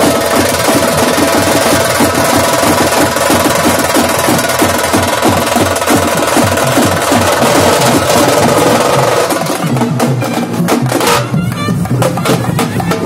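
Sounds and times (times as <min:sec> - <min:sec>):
drums beaten with sticks: 0:00.0 - 0:13.0.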